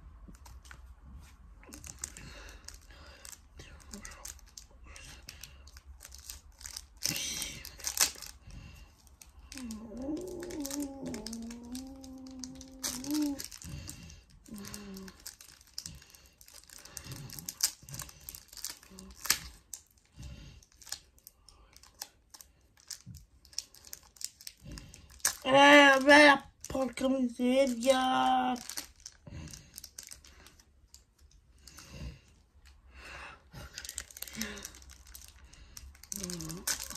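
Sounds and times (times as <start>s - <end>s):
wrapper crinkling and tearing: 1.6s - 32.8s, 33.6s - 36.9s
person humming: 9.5s - 13.5s, 36.2s - 36.9s.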